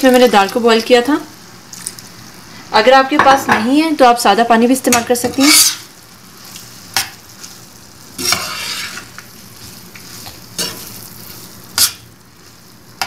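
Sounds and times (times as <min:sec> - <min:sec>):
hot pan hissing: 0:04.1 - 0:13.0
spatula scraping pan: 0:04.9 - 0:12.1.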